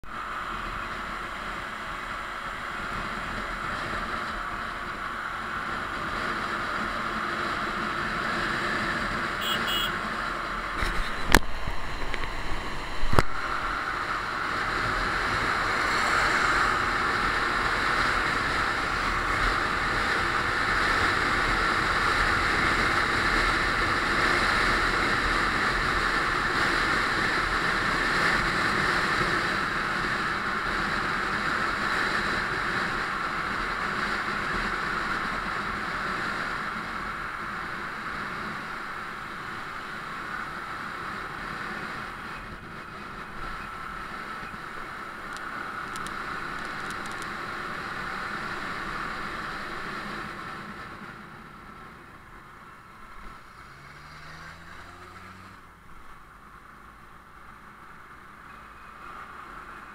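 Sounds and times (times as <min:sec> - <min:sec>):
vehicle road and wind noise: 0:00.0 - 0:59.9.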